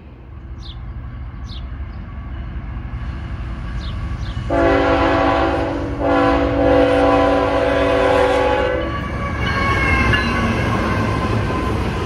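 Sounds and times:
train wheels rumbling on rails: 0.0s - 12.0s
locomotive air horn blasts: 4.5s - 11.2s.

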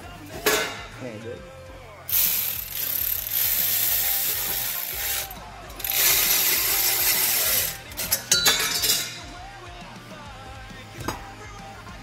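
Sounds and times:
ratchet wrench ratcheting: 2.1s - 9.2s.

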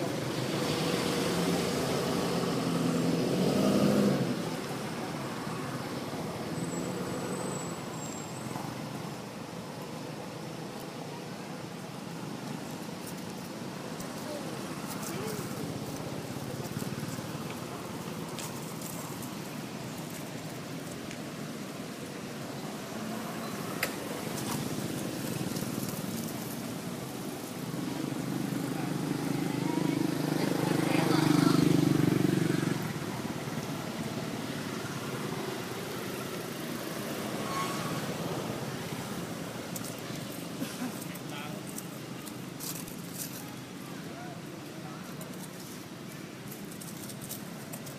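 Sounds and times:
outdoor background noise: 0.0s - 47.9s
faint clicks and rustles: 12.4s - 21.3s, 39.6s - 43.8s, 44.5s - 47.9s
faint high squeak: 37.4s - 38.0s.

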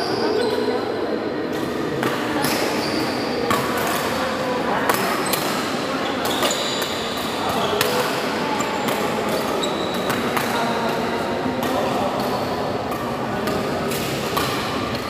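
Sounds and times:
murmur of voices: 0.0s - 15.0s
shoes squeaking on court: 1.8s - 4.2s, 5.0s - 10.4s
racket hitting shuttlecock: 3.5s - 4.2s, 4.8s - 15.0s.

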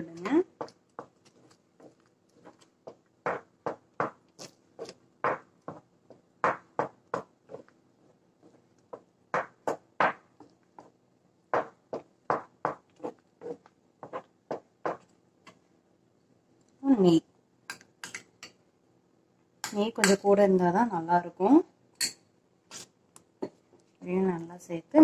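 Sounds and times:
utensil scraping frying pan: 12.7s - 14.3s.

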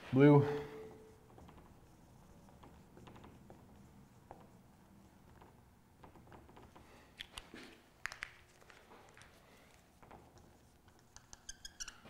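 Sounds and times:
marker squeaking on whiteboard: 0.9s - 6.8s, 9.2s - 12.0s.

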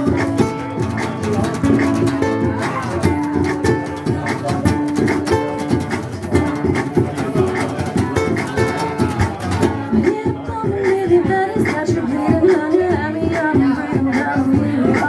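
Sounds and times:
acoustic guitar strumming: 0.0s - 10.4s
ukulele strumming: 0.0s - 12.2s.

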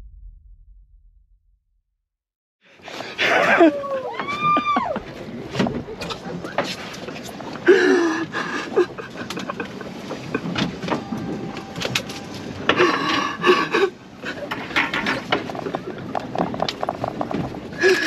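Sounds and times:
knocks and clatter: 14.4s - 18.0s.

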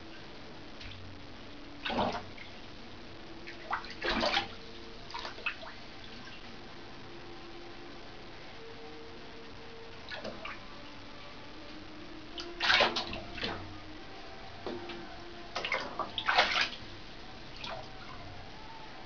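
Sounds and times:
cat splashing in shallow water: 1.8s - 2.2s, 3.5s - 6.2s, 12.4s - 13.6s, 15.6s - 16.8s.

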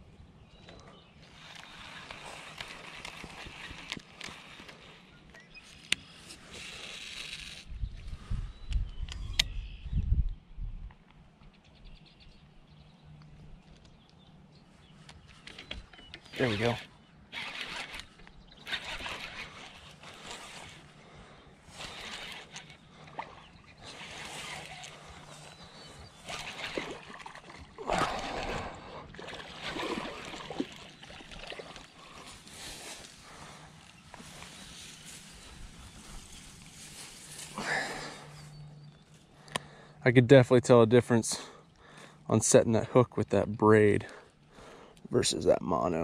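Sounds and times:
fishing reel ticking: 1.3s - 4.9s, 16.4s - 20.9s, 21.7s - 23.2s, 23.8s - 25.6s
low buffeting rumble on microphone: 7.7s - 10.9s
fish splashing in water: 26.2s - 32.2s.

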